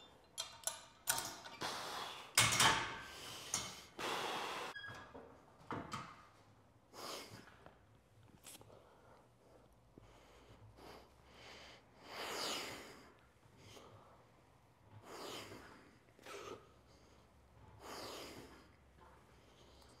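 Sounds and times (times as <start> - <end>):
man breathing heavily: 3.0 - 4.7, 15.0 - 20.0.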